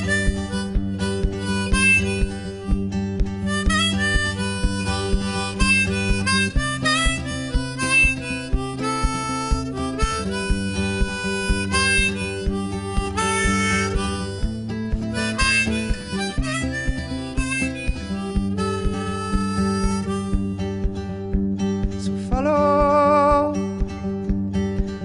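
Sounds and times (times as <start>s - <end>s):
instrumental music with beat: 0.0s - 25.0s.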